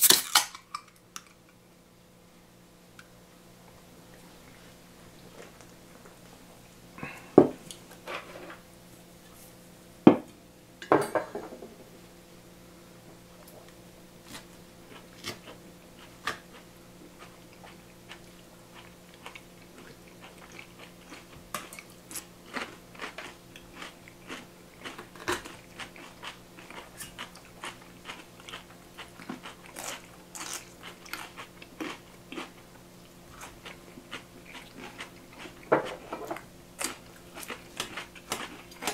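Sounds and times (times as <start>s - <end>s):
crunchy bites and chewing: 0.0s - 1.5s, 14.2s - 38.9s.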